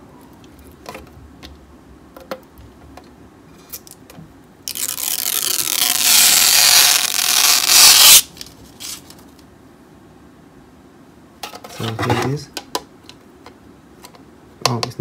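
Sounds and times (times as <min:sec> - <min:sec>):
plastic film peeling: 0:04.7 - 0:09.3.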